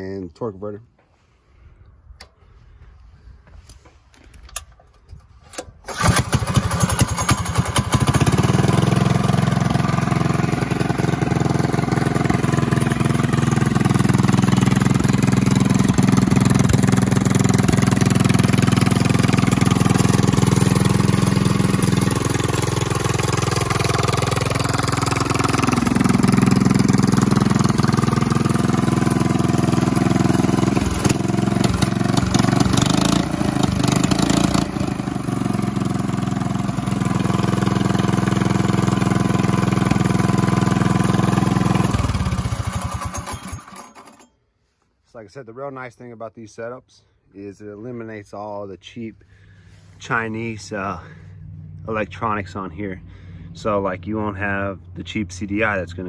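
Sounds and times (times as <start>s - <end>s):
small engine running: 5.9s - 44.3s.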